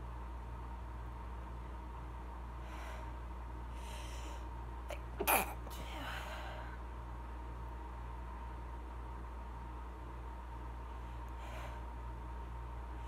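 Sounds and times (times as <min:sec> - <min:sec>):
faint breaths: 0:02.6 - 0:04.6, 0:10.8 - 0:12.1
woman sneezing: 0:05.2 - 0:05.6.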